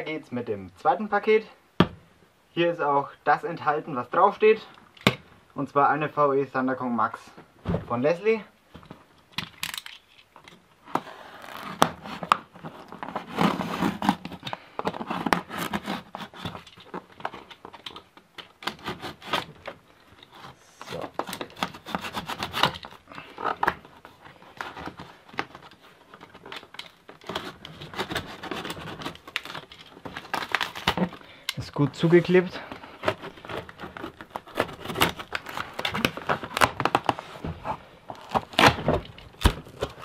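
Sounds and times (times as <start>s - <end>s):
tape ripping and crackling: 9.3s - 40.0s
box cutter slitting tape: 10.9s - 23.9s, 26.4s - 31.2s, 33.0s - 37.3s, 38.1s - 40.0s.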